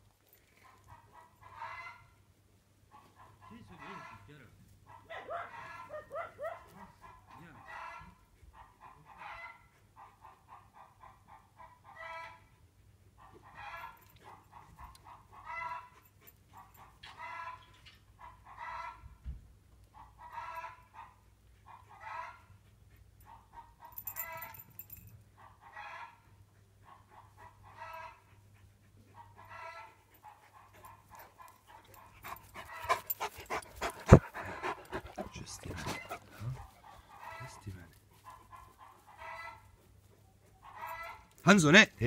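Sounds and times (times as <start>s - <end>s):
dog barking: 4.9s - 8.0s.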